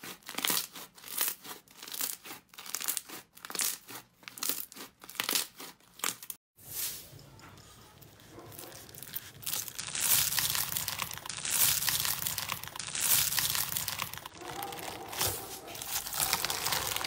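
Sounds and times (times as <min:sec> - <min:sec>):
slime crackling and squishing: 0:07.9 - 0:17.0.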